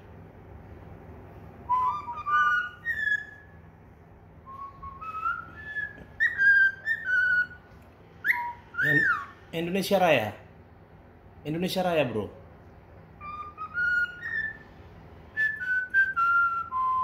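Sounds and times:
cockatiel whistling a tune: 0:01.7 - 0:03.6, 0:04.4 - 0:09.4, 0:13.2 - 0:14.7, 0:15.3 - 0:17.0.

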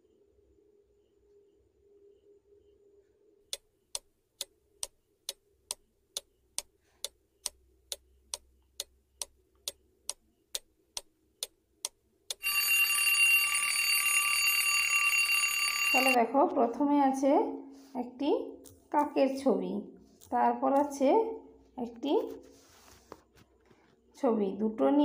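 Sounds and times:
clock ticking: 0:03.5 - 0:12.7
alarm clock bell ringing: 0:12.4 - 0:16.2.

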